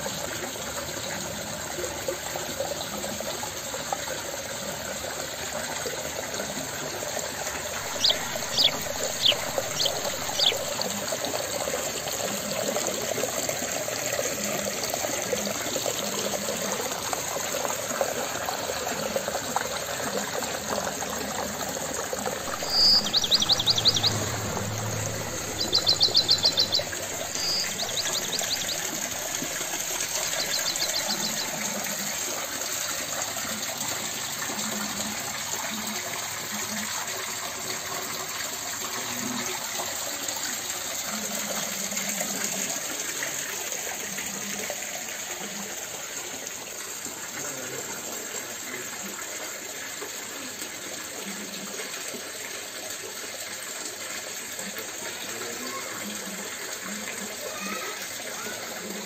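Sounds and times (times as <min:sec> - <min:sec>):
waterfall into pond: 0:00.0 - 0:59.0
bird chirping and trilling: 0:07.8 - 0:10.9, 0:22.4 - 0:31.6.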